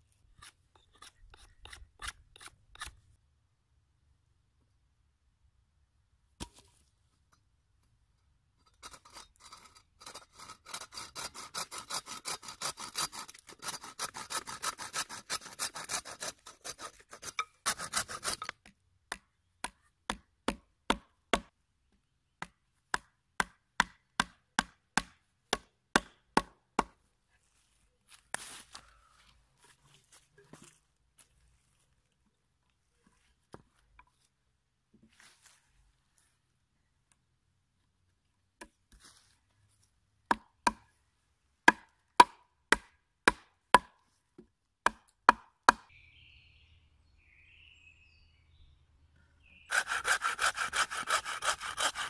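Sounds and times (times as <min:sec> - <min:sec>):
bow saw cutting a log: 0:00.3 - 0:03.0, 0:08.8 - 0:18.7, 0:49.6 - 0:52.0.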